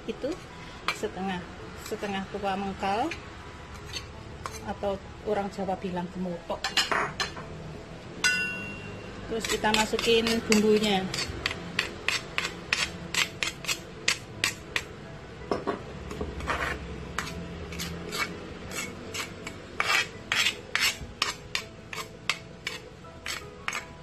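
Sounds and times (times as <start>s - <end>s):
metal spoon scraping stone mortar: 3.7s - 4.8s, 9.3s - 14.9s, 16.4s - 24.0s.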